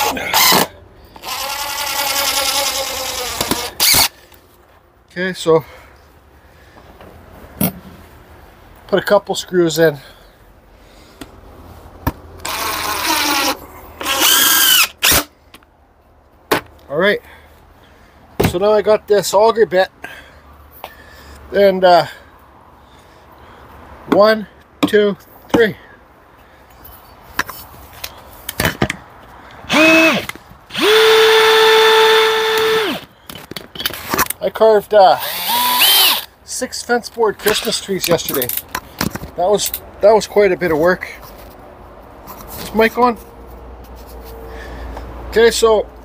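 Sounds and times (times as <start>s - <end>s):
cordless drill driving screws: 0.0s - 4.1s, 12.4s - 15.3s, 29.7s - 33.1s, 35.2s - 36.3s
drill chuck clicks and knocks: 3.3s - 4.1s.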